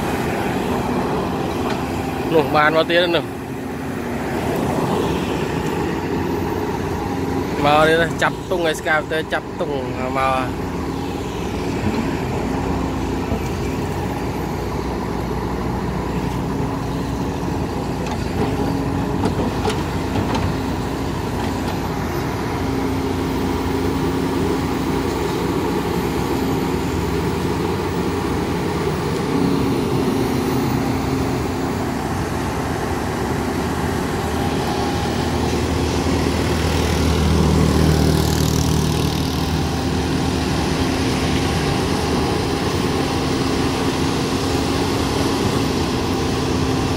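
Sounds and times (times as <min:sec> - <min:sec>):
excavator diesel engine running: 0:00.0 - 0:46.9
excavator digging in wet mud: 0:06.5 - 0:46.9.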